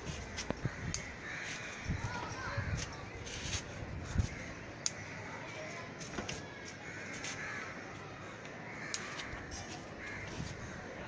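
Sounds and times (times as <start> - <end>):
crows cawing: 0.3 - 2.6, 4.2 - 5.5, 6.7 - 11.0
scissors snipping: 8.9 - 9.8.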